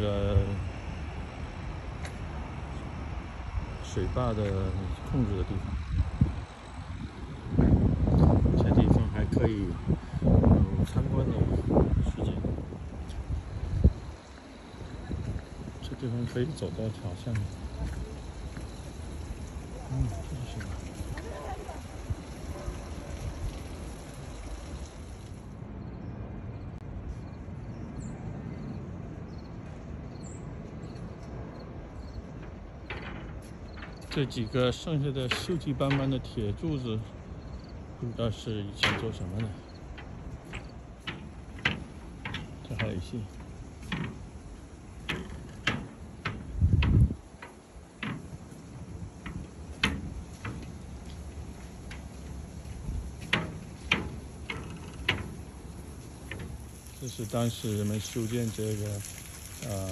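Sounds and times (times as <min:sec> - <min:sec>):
footsteps on a wooden deck: 0:10.8 - 0:23.9, 0:30.6 - 0:34.4, 0:39.0 - 0:57.0.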